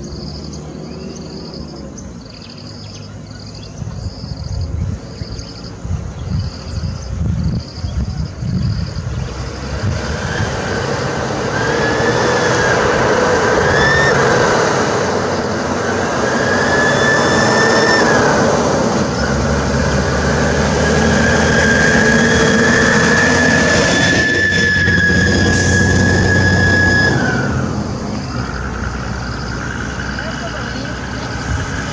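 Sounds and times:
bus diesel engine: 0.0 - 31.9
high wavering whine: 10.3 - 30.9.

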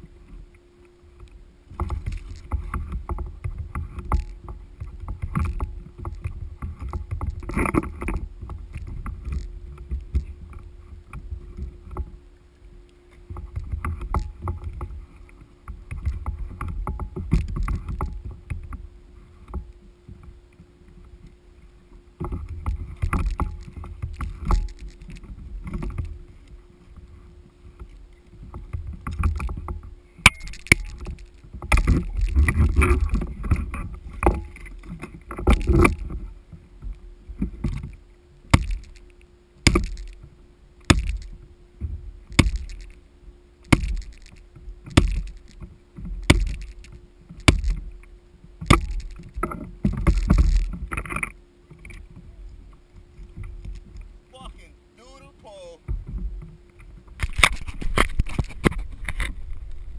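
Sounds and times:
water sloshing against hull: 0.0 - 59.9.

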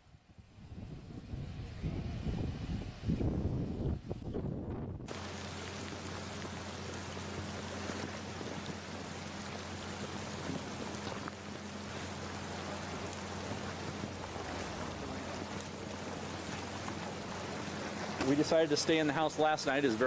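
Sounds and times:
steady rain falling: 5.1 - 20.0.

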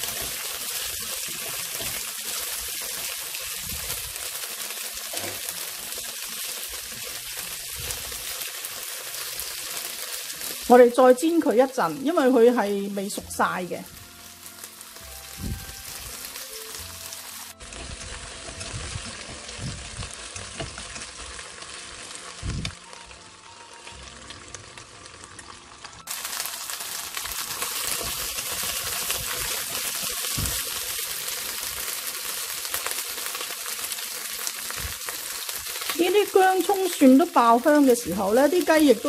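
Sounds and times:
food sizzling in hot oil: 0.0 - 39.0.

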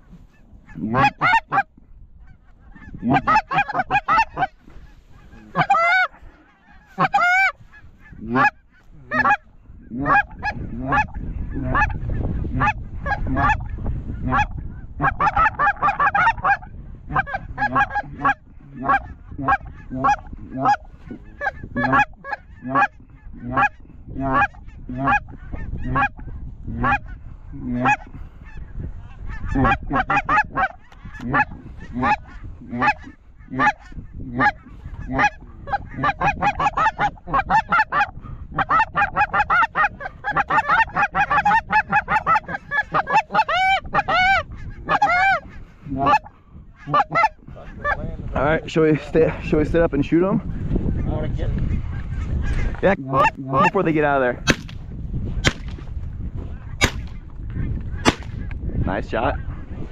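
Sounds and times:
geese honking: 0.0 - 48.0, 50.4 - 54.7, 56.5 - 58.6
high trilled goose calls: 2.3 - 12.1.

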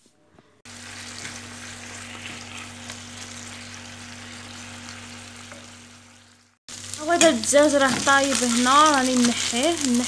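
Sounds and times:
chicken sizzling in hot oil: 0.7 - 10.0.

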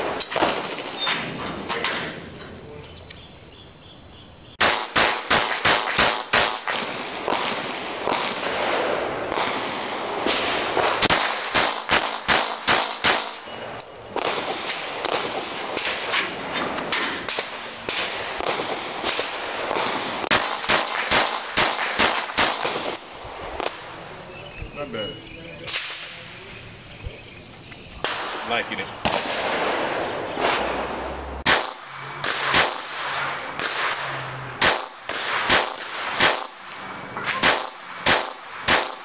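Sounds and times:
pistol rapid fire: 4.6 - 13.5, 16.9 - 23.0, 31.4 - 36.7, 37.3 - 39.0.

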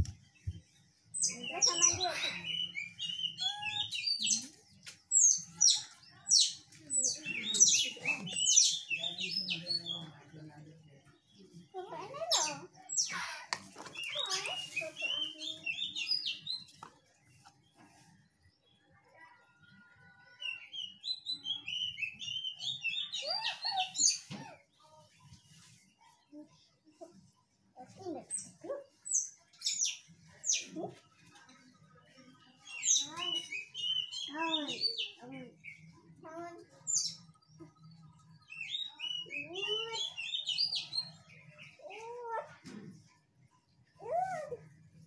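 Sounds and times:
high chirping calls: 1.2 - 10.1, 32.6 - 35.9, 36.8 - 42.1.

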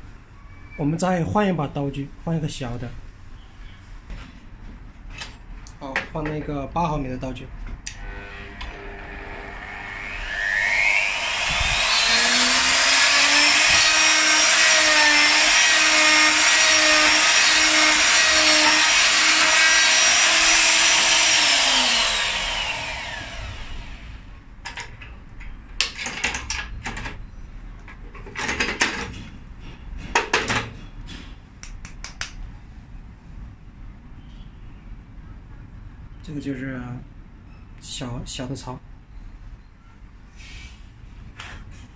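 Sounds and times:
router motor whine cutting wood: 8.0 - 24.1.

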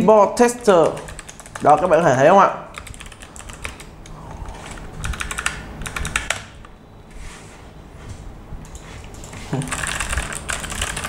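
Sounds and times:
mechanical keyboard typing: 0.6 - 3.9, 4.6 - 6.6, 9.2 - 11.0.

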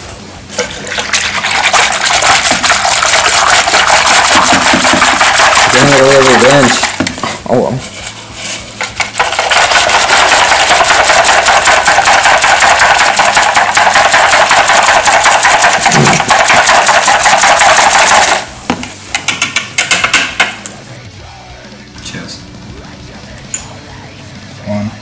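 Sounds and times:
whisk clattering in a jug: 0.9 - 7.1, 8.9 - 18.4.

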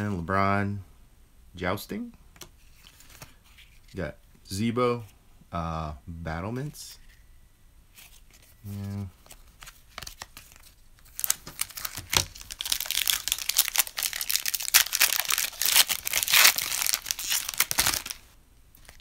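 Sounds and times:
card pack wrapper tearing and crinkling: 9.2 - 19.0.

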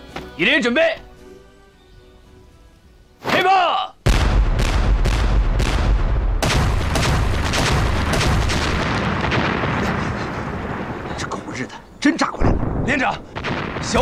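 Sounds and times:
field guns firing: 4.0 - 11.2, 12.4 - 14.0
shells exploding: 4.0 - 11.2, 12.4 - 14.0
deep rumble: 4.1 - 11.2.

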